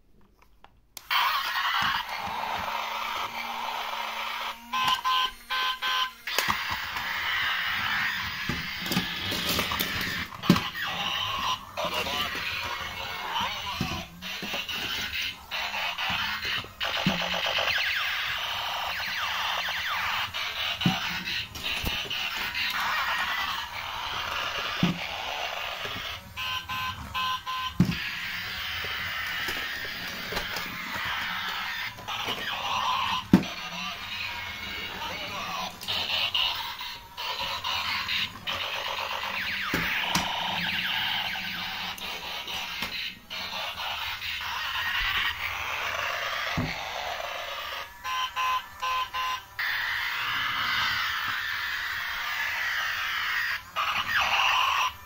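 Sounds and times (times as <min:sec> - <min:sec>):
toy robot car motor whirring: 0:01.0 - 0:55.0
noisy electronic effect: 0:01.1 - 0:55.0
rapid electronic beeps: 0:09.0 - 0:45.2, 0:47.5 - 0:50.9
electronic beeps: 0:24.0 - 0:36.2, 0:48.0 - 0:49.7.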